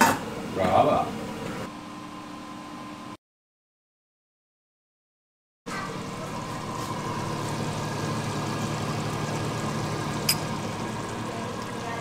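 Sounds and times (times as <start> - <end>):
range hood fan humming: 0.0 - 3.2, 5.7 - 12.0.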